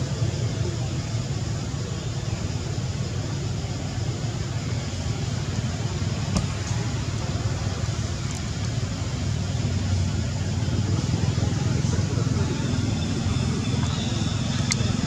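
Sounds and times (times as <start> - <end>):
low background rumble: 0.0 - 15.0.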